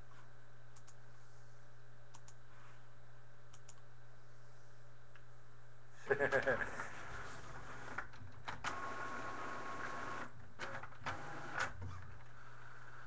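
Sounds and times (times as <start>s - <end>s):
sharp clicks: 0.8s - 1.0s, 2.1s - 2.4s, 3.5s - 3.8s.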